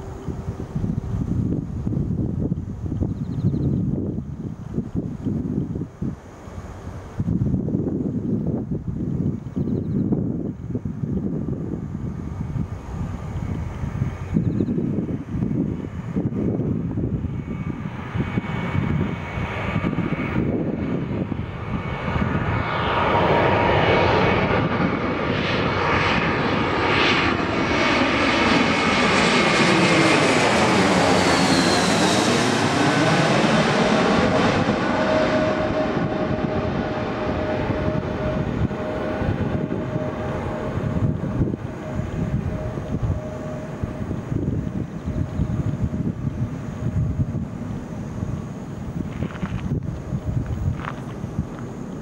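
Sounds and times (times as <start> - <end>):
jet airliner flying overhead: 0.0 - 52.0
high whine falling in pitch: 27.2 - 52.0.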